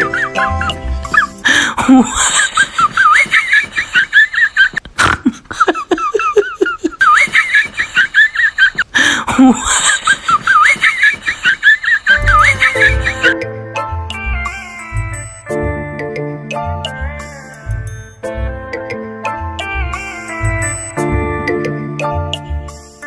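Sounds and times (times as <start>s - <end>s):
high-pitched giggling laugh track: 0.0s - 13.4s.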